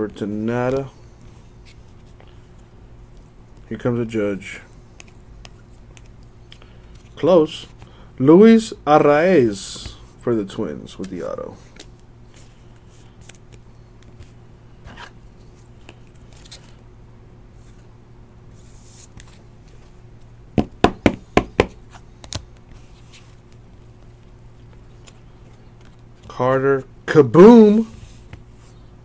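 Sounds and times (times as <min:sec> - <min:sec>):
cards rustling and clicking: 0:04.6 - 0:08.0, 0:10.9 - 0:16.8, 0:18.6 - 0:20.0, 0:21.6 - 0:26.5.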